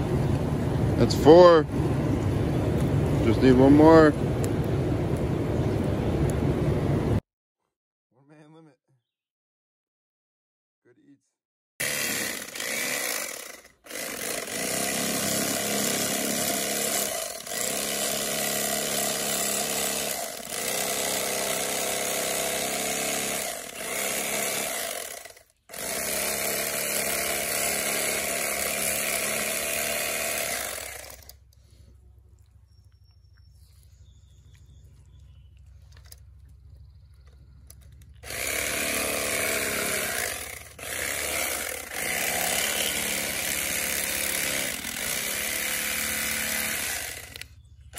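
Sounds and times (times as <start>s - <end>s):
electric knife buzzing: 11.8s - 31.3s, 38.2s - 47.5s.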